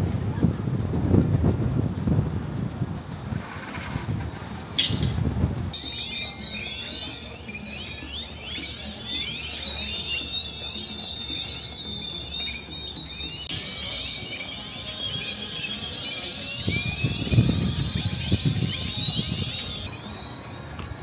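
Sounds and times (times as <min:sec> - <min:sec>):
birds chirping and whistling: 0:03.3 - 0:21.0
steady high-pitched tone: 0:05.8 - 0:21.0.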